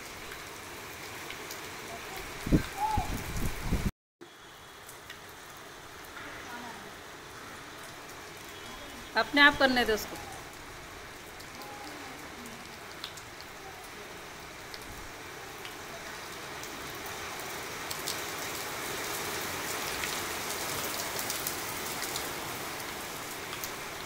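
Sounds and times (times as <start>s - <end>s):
rain hiss on tiles: 0.0s - 24.0s
raindrop ticks: 4.8s - 5.4s, 12.6s - 14.0s, 23.4s - 23.8s.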